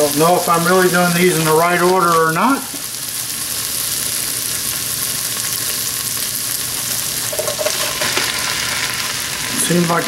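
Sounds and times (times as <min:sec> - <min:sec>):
onion sizzling in oil: 0:00.0 - 0:10.0
mushrooms knocking into pot: 0:07.3 - 0:08.3.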